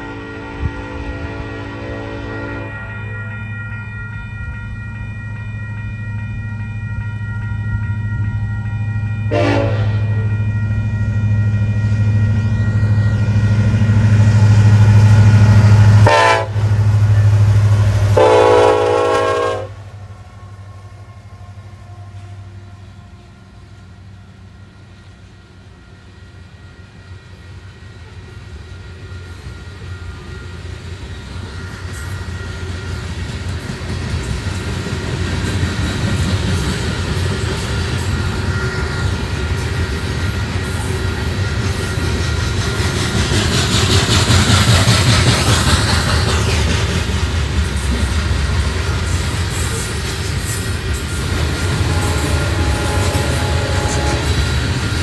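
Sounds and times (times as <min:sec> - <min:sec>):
locomotive air horn: 0:00.0 - 0:02.9, 0:09.3 - 0:10.2, 0:15.8 - 0:23.4, 0:51.3 - 0:54.7
locomotive engine rumble: 0:03.0 - 0:55.0.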